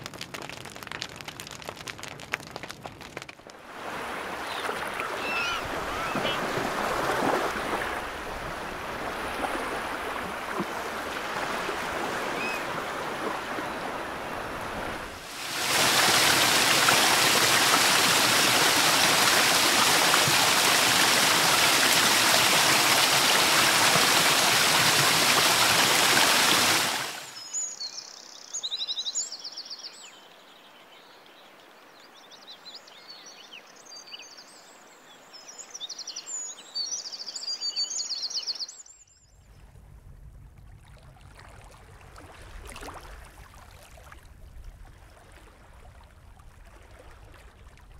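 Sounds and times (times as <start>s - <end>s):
surf washing over rocks: 0.0s - 27.4s
birds chirping: 4.4s - 6.5s
waterfall rushing: 14.0s - 27.3s.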